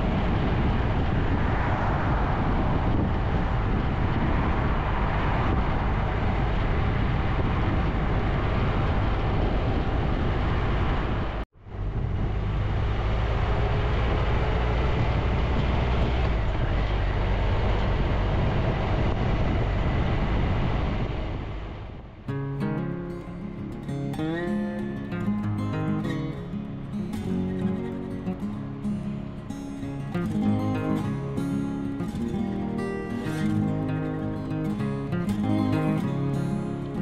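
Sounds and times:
wind and road noise: 0.0s - 37.0s
acoustic guitar music: 22.3s - 37.0s.

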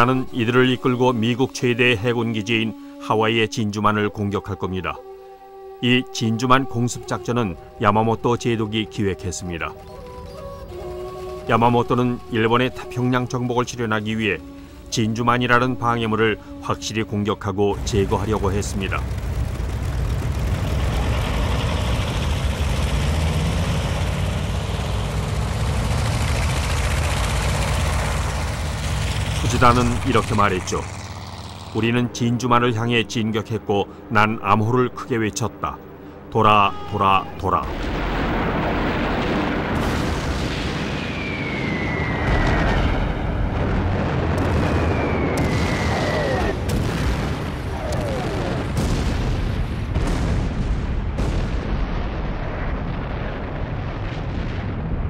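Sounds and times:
propeller plane engines rumbling: 6.9s - 50.0s
sharp blasts: 37.6s - 54.6s
falling whistle: 40.8s - 43.5s, 44.6s - 46.6s.

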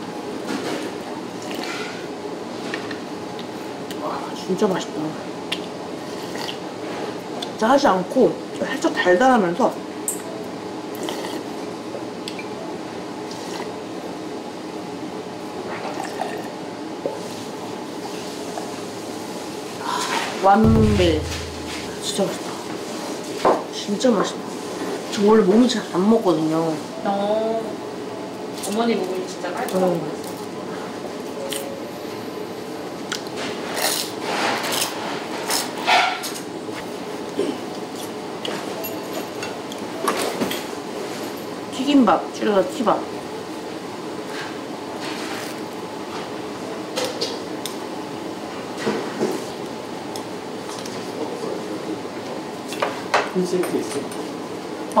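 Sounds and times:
wet chewing and slurping: 6.1s - 6.6s, 11.0s - 11.5s
low room hum: 19.7s - 22.6s.

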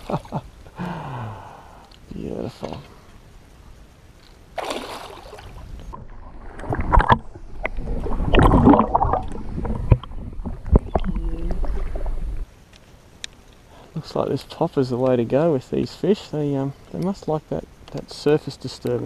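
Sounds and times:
water splashing and gurgling: 4.5s - 12.5s
hissing splash: 4.6s - 5.6s
muffled underwater sloshing: 4.6s - 12.5s.

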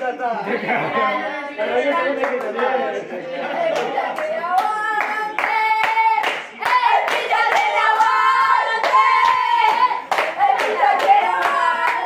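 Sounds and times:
people clapping in time: 3.7s - 12.0s
group singing a football chant: 6.7s - 12.0s.

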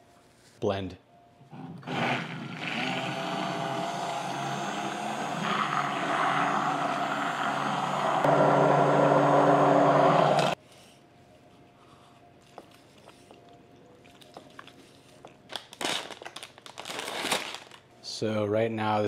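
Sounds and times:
immersion blender motor: 1.8s - 10.6s.

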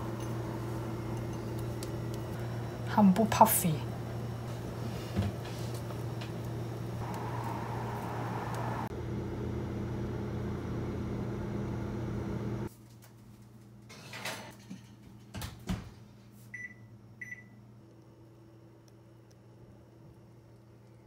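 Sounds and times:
low hum: 5.8s - 12.7s.

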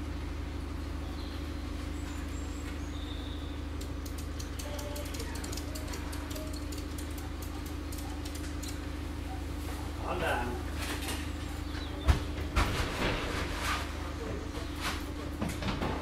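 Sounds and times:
vehicle engine idling: 0.0s - 12.6s
rapid faint clicks: 3.8s - 8.9s.

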